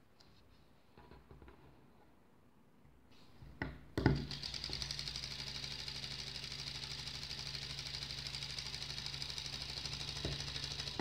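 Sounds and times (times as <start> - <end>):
solenoid engine clattering: 4.2 - 11.0.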